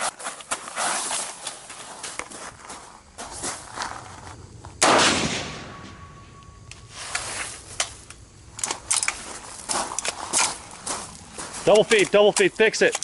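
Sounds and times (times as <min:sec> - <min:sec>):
rifle shot: 0:04.8 - 0:06.3.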